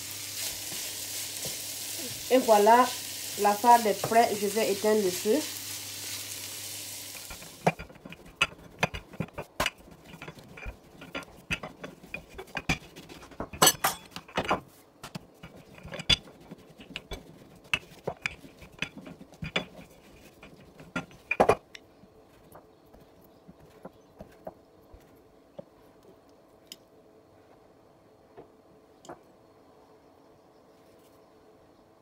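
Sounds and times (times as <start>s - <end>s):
sizzling in a frying pan: 0.0s - 9.0s.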